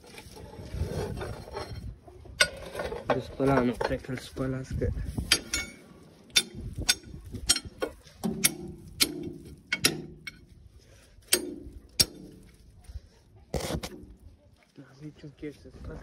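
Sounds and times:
metal objects clanking: 0:05.2 - 0:10.5.

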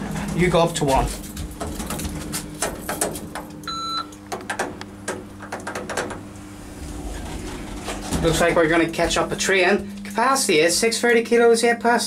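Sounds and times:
low steady hum: 0:00.0 - 0:12.0
short electronic beep: 0:03.7 - 0:04.1.

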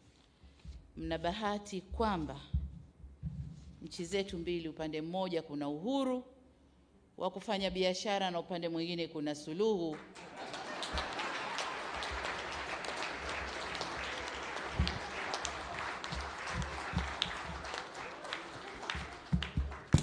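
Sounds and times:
low thumps: 0:01.9 - 0:03.8
audience applauding: 0:10.0 - 0:20.0.

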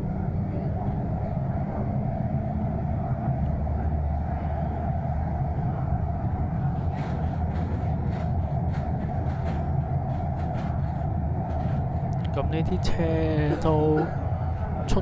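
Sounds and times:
train rumbling in tunnel: 0:00.0 - 0:15.0.

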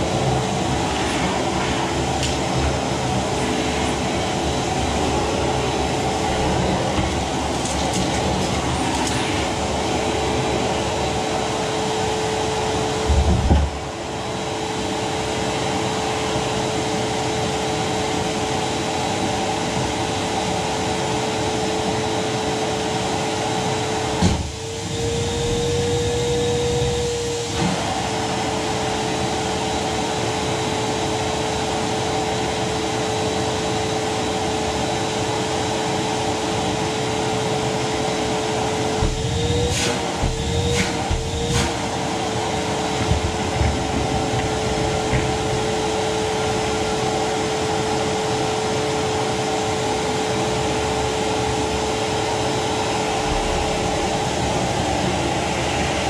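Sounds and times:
vacuum cleaner running: 0:00.0 - 0:56.0.

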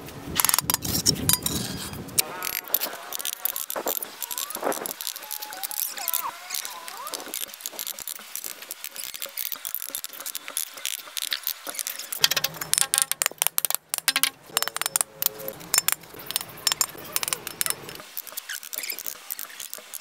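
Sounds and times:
trowel clinking on bricks: 0:00.4 - 0:20.0.

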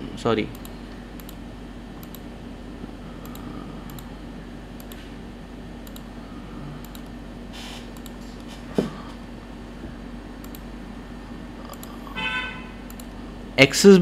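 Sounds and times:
steady low hum: 0:00.0 - 0:14.0
computer mouse clicks: 0:00.5 - 0:01.4, 0:02.0 - 0:02.2, 0:03.2 - 0:04.1, 0:04.8 - 0:05.1, 0:05.8 - 0:06.1, 0:06.8 - 0:07.2, 0:07.9 - 0:08.5, 0:10.4 - 0:10.7, 0:11.7 - 0:12.0, 0:12.9 - 0:13.2.

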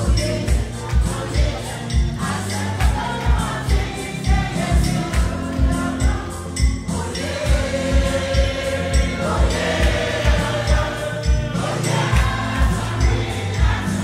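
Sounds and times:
gospel choir singing: 0:00.0 - 0:14.0
low drum beat: 0:00.0 - 0:14.0.

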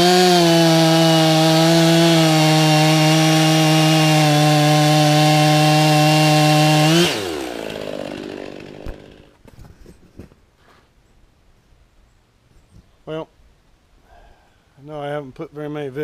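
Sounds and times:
chainsaw cutting log: 0:00.0 - 0:09.8.

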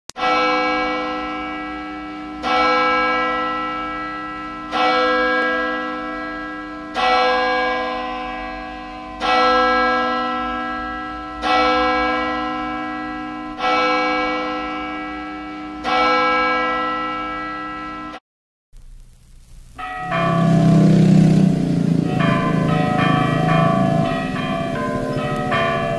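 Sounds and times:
bell tolling: 0:19.8 - 0:25.9.

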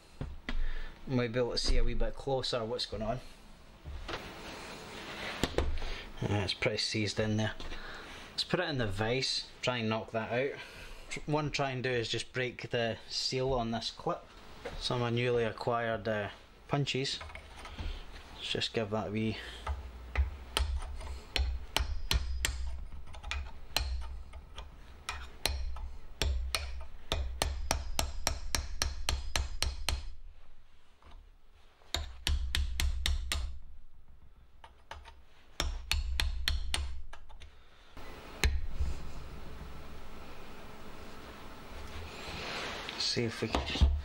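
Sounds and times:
hammer tapping steel punch: 0:19.6 - 0:30.2, 0:31.9 - 0:33.7, 0:34.6 - 0:37.5.

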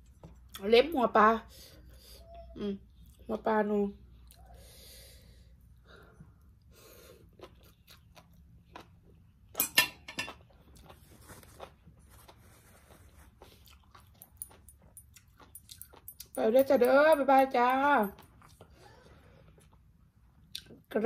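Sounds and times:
person chewing food: 0:05.6 - 0:16.4, 0:18.1 - 0:20.8.

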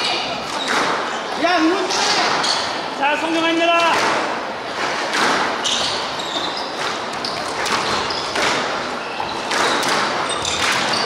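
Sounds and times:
sneaker squeaks on wooden floor: 0:00.0 - 0:02.9, 0:04.8 - 0:11.0
squash ball cracking off racquets: 0:00.4 - 0:01.2, 0:03.8 - 0:11.0.

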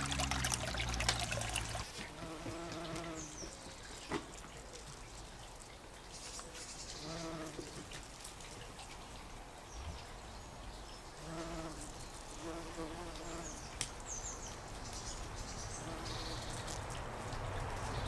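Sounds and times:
bumblebee buzzing: 0:00.0 - 0:03.4, 0:07.0 - 0:07.6, 0:11.2 - 0:13.6.

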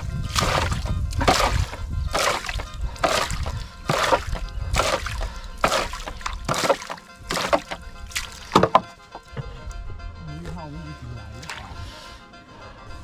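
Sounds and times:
water splashing over side: 0:00.0 - 0:08.9
jug scooping water in boat: 0:00.0 - 0:09.8, 0:11.4 - 0:12.0.

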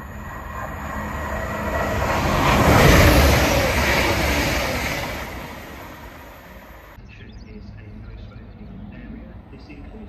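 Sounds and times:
train passing at speed: 0:00.0 - 0:07.0.

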